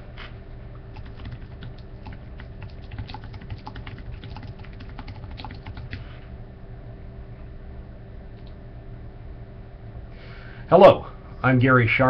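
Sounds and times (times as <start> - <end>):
steady low hum: 0.0 - 12.0
computer keyboard typing: 1.0 - 6.1.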